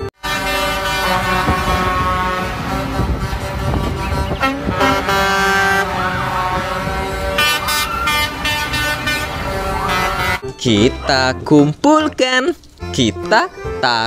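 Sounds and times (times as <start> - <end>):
truck air horns blasting: 0.0 - 10.4
truck engines running: 0.0 - 13.8.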